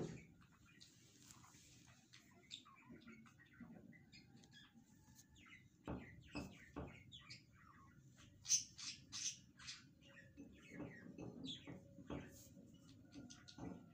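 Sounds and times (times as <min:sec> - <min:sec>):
birds chirping: 0:00.0 - 0:13.9
soft knocks: 0:05.8 - 0:07.1.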